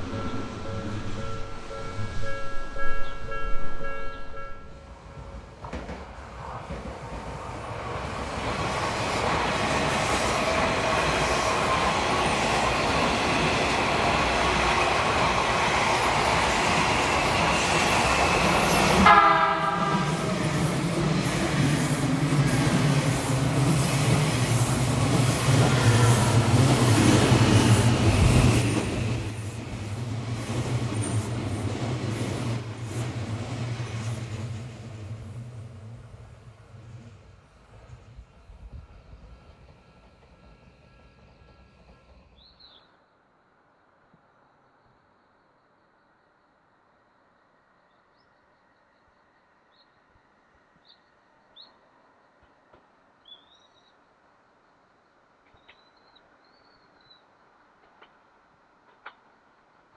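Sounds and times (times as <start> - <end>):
train horn blast: 0.0 - 4.9, 19.0 - 20.5
electric train passing: 0.0 - 44.8.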